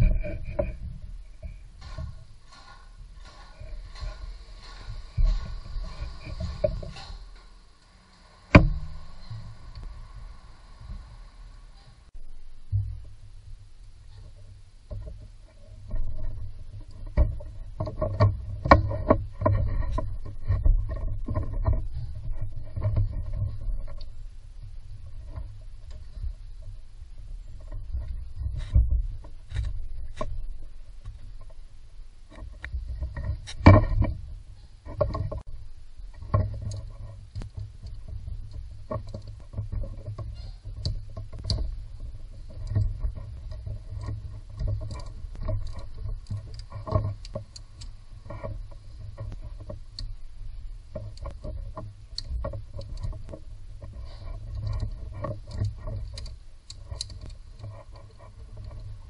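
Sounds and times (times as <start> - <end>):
clicks and rattles of engine parts: 0.0 - 9.9, 14.0 - 24.2, 32.3 - 50.2, 50.8 - 59.0.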